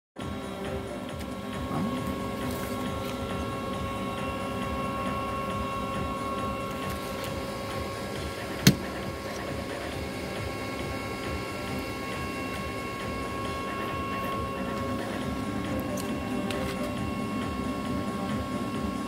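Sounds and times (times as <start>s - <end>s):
steady mechanical hum: 0.2s - 19.0s.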